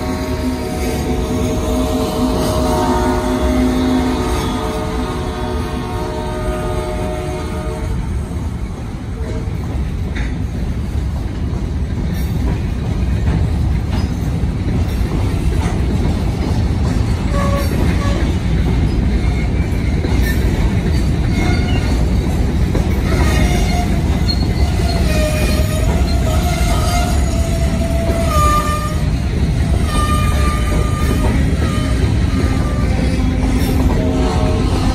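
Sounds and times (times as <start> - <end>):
rail clicks: 0.0 - 34.9
train wheels rumbling on rail: 0.0 - 34.9
wheel squeals: 23.0 - 29.1.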